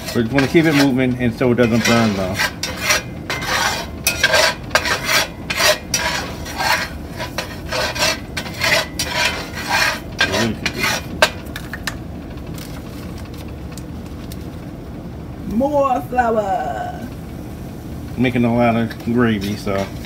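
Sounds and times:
metal fork scraping a skillet: 0.0 - 11.4, 19.4 - 20.0.

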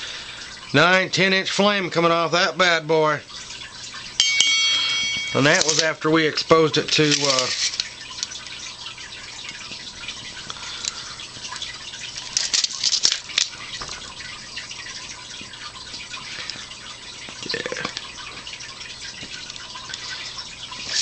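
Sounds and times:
fire starter sizzling and crackling: 5.0 - 8.6.

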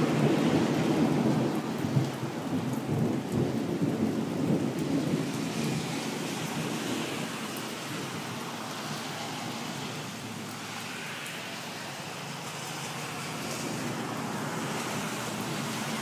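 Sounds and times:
rain hissing: 0.0 - 16.0
traffic swishing on wet road: 0.0 - 16.0.

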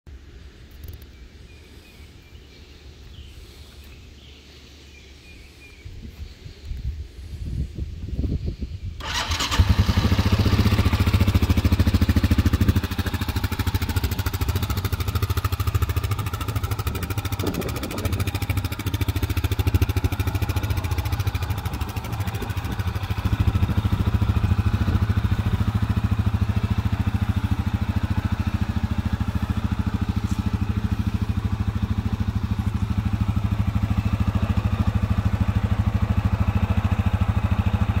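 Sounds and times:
atv engine starting and idling: 9.0 - 38.0.

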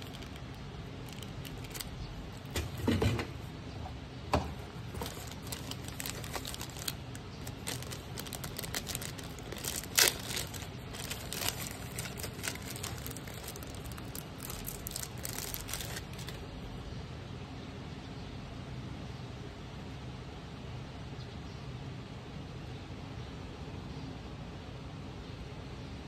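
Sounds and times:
plastic wrapping crinkling and tearing: 0.0 - 2.6, 4.6 - 16.5.

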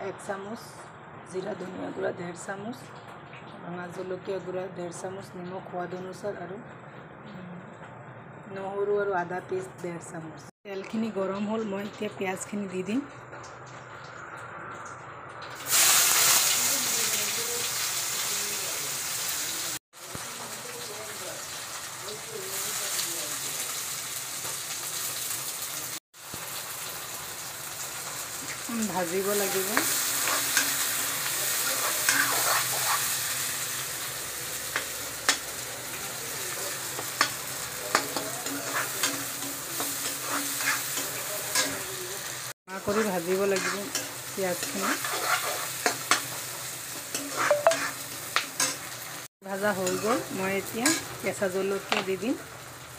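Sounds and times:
onions sizzling in hot oil: 11.1 - 52.9.

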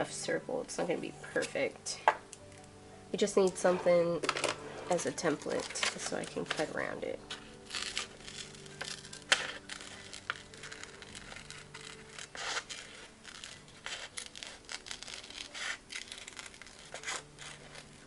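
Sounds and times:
paper rustling: 4.2 - 18.0
scissors snipping paper: 5.3 - 18.0.

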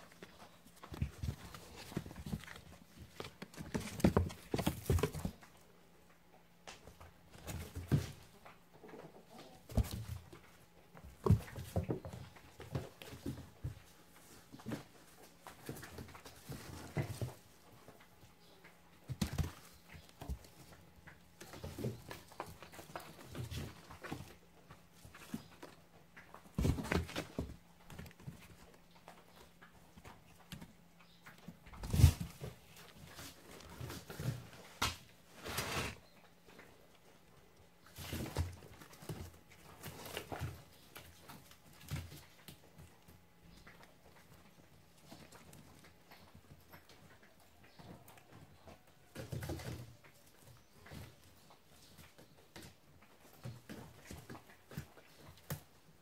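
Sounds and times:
cats scrambling in cardboard box: 0.0 - 5.5, 9.4 - 17.9, 26.4 - 28.7, 31.7 - 36.1, 37.8 - 43.0.

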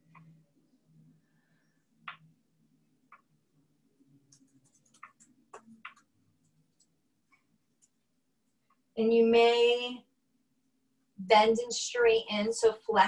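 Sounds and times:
faint low hum: 0.0 - 11.6
massage balls clicking on desk: 4.2 - 7.0.

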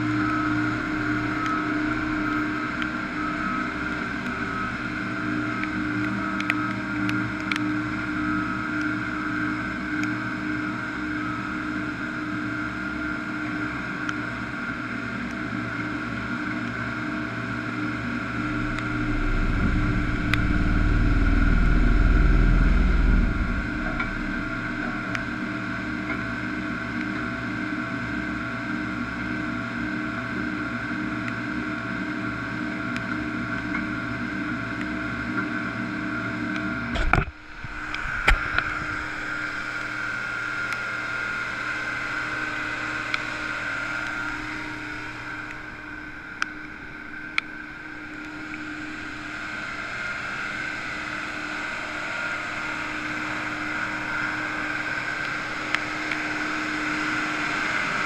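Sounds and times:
engine high whine: 0.0 - 32.6, 35.7 - 58.0
engine deep pulsing rumble: 17.5 - 26.2.

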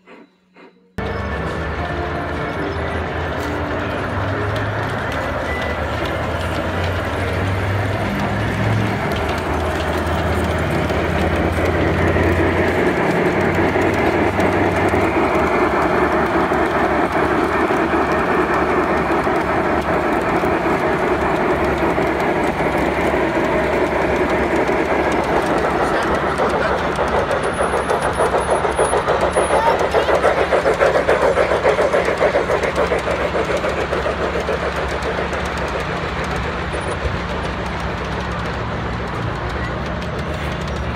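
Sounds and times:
model steam train running: 0.0 - 40.9.

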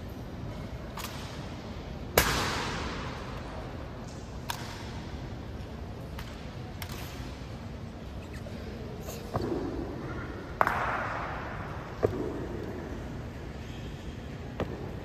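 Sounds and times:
background noise: 0.0 - 15.0
sharp crack with echo: 2.1 - 3.4, 4.0 - 5.2, 9.5 - 12.7.

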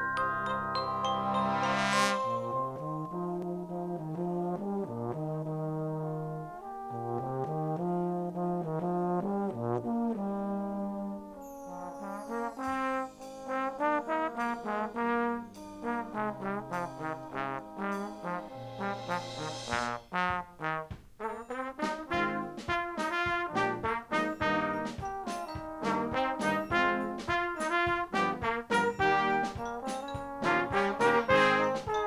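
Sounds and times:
high percussion shimmer: 0.0 - 3.1, 11.6 - 16.0, 16.7 - 20.2, 24.2 - 28.0, 28.8 - 32.0
brass band playing chords: 1.2 - 32.0.

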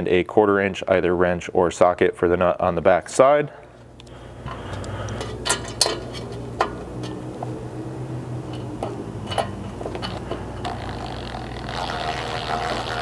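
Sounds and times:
steady low hum: 2.4 - 13.0
metal clicks and clinks: 8.5 - 10.4.

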